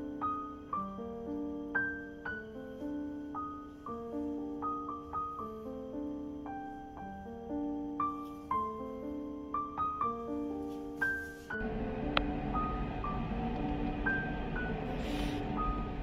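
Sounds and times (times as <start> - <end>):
slow solo piano music: 0.0 - 16.0
steady low hum: 11.6 - 16.0.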